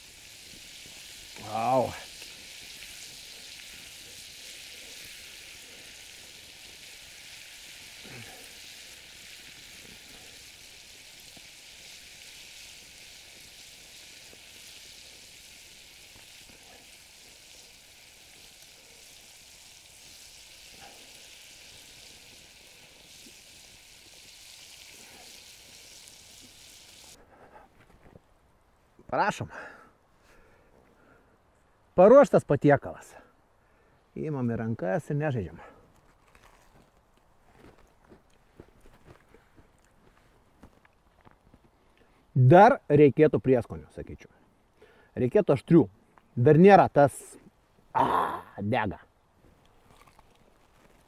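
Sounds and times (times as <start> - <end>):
chicken sizzling in hot oil: 0.0 - 27.2.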